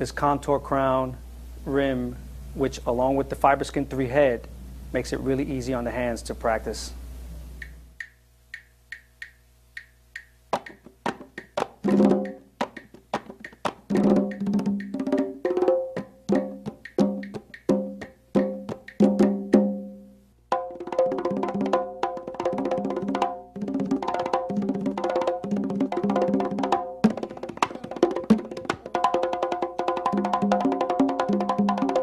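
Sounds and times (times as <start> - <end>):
congas played by hand: 7.6 - 32.0.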